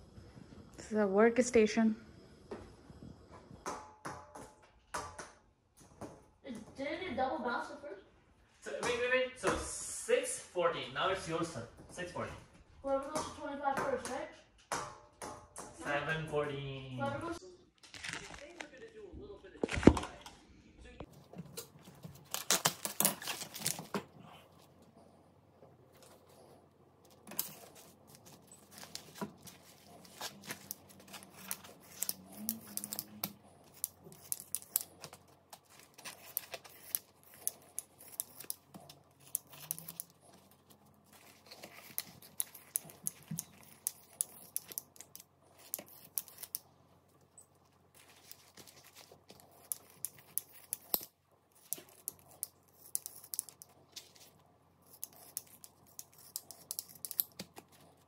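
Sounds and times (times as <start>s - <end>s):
rustling of things handled: 21.0s - 25.0s, 25.6s - 58.0s.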